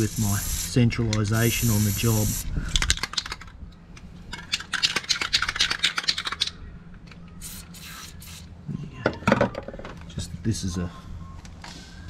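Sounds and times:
aerosol spray hiss: 0.0 - 0.8, 1.4 - 2.4, 7.4 - 8.5
aerosol can sputtering: 7.4 - 8.5.

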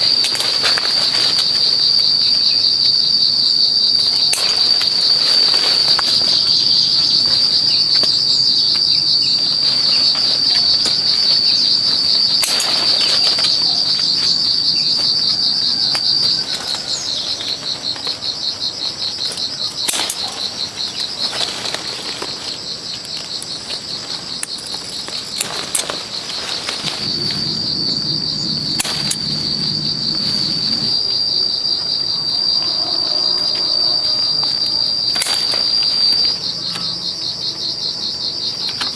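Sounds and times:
insects droning: 0.0 - 38.9.

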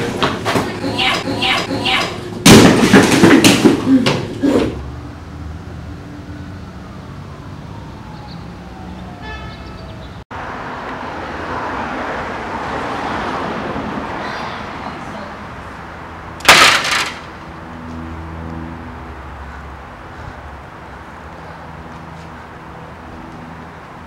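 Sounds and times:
vehicle passing: 4.7 - 16.5, 17.2 - 24.0.

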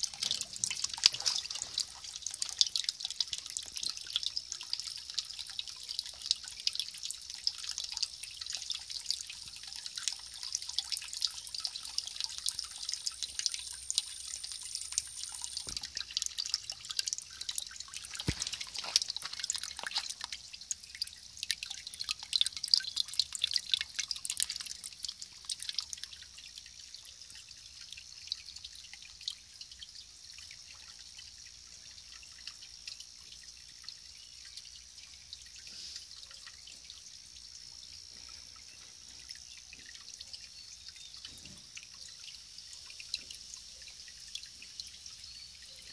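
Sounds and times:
water trickling and dripping: 0.0 - 45.9.

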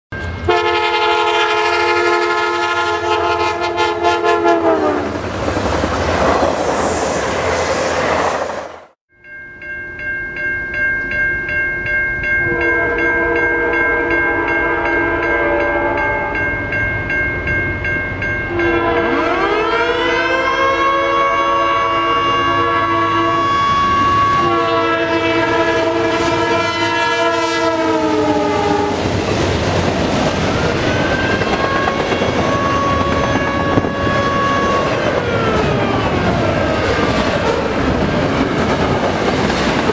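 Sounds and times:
crossing bell ringing: 0.1 - 4.6, 9.1 - 39.9
train rumble: 0.2 - 8.9, 25.2 - 39.9
locomotive air horn: 0.4 - 5.2, 12.5 - 16.4, 18.5 - 29.1, 31.1 - 35.1.

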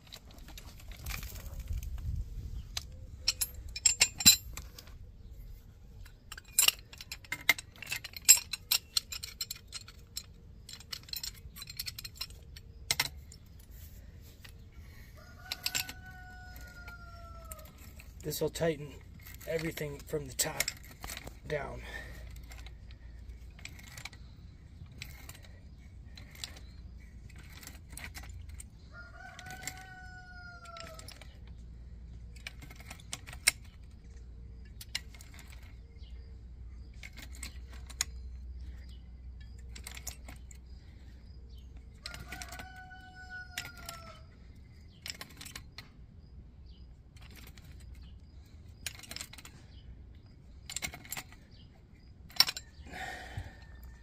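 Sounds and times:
wrenches clinking on metal fittings: 0.1 - 5.0, 6.0 - 13.8, 15.4 - 28.7, 36.8 - 41.2, 47.2 - 49.8, 50.6 - 54.0.

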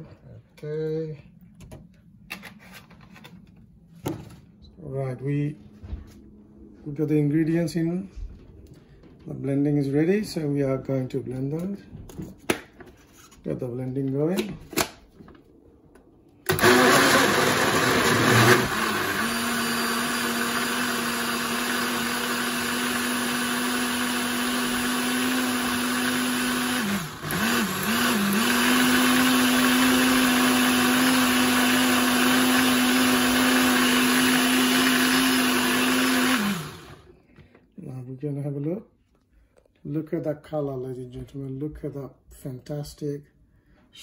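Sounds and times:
blender motor whine: 16.5 - 37.2.

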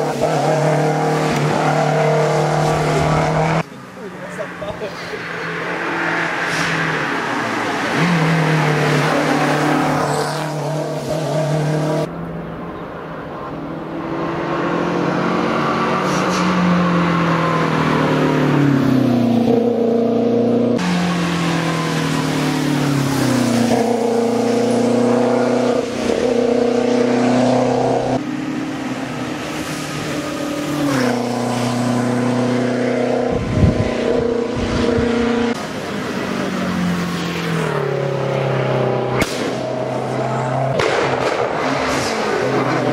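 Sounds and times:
car engine accelerating hard: 0.0 - 3.7, 13.9 - 42.9.

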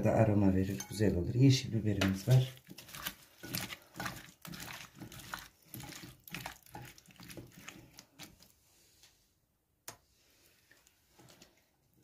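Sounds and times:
hands mixing wet vegetables: 0.0 - 9.2, 9.9 - 12.0.

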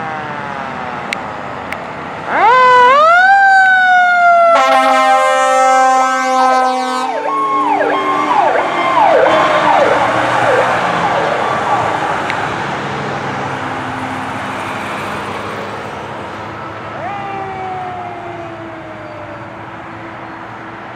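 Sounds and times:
slow falling siren wail: 0.0 - 1.4, 2.2 - 15.8, 16.4 - 20.9
fire engine siren: 0.0 - 20.9.

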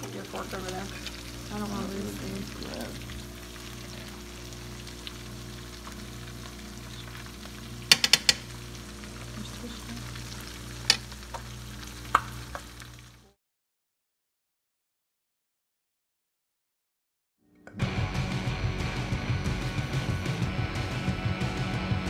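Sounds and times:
fish frying in oil: 0.0 - 13.4
forks clinking against pan: 7.9 - 8.5.

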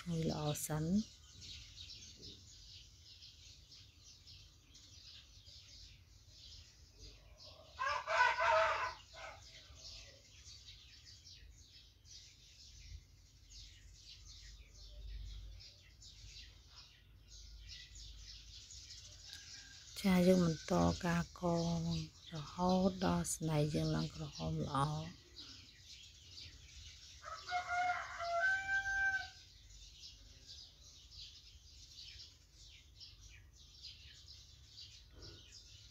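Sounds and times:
rooster crowing: 7.7 - 9.4, 27.2 - 29.4.

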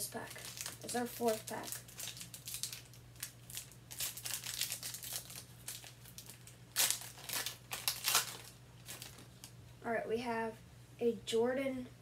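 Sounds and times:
plastic wrapper crinkling and tearing: 0.1 - 9.6.

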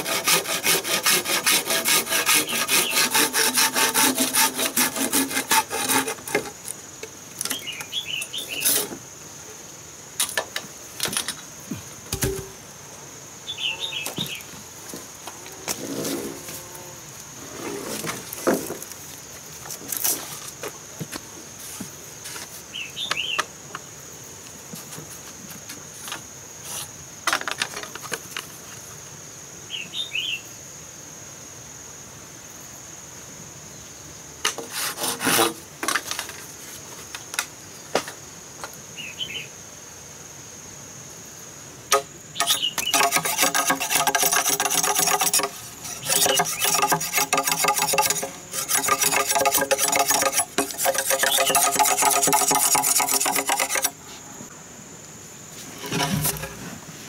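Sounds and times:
saw cutting bamboo: 0.0 - 6.6, 34.6 - 35.6, 41.9 - 54.0
high insect buzz: 0.0 - 7.6, 8.3 - 20.7, 41.2 - 57.0
bamboo poles knocking: 12.1 - 12.6, 41.9 - 54.0.

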